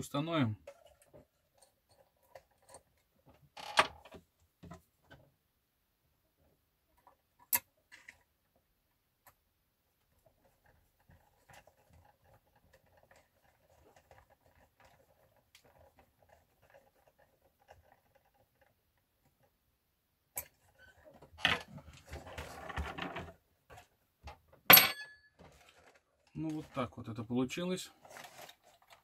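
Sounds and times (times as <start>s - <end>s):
plastic model parts clattering: 27.9s - 29.0s.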